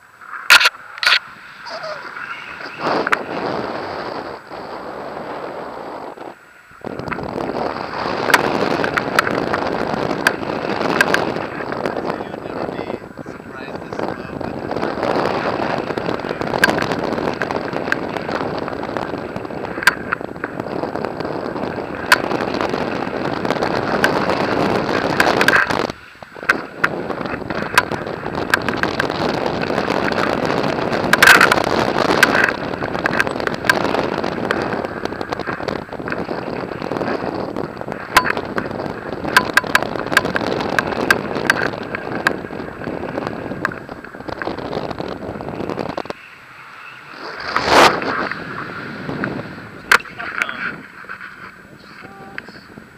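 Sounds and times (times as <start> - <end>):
wind buffeting microphone: 0.0 - 52.9
sharp clicks and knocks: 10.2 - 12.0, 16.4 - 18.4, 19.3 - 20.6, 22.0 - 22.4, 25.0 - 29.2, 31.0 - 36.3, 37.7 - 42.5, 49.9 - 50.5.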